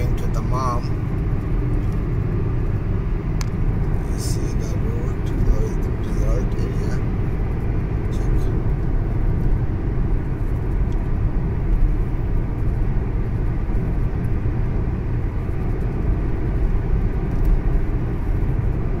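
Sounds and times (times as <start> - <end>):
car road and engine rumble: 0.0 - 19.0.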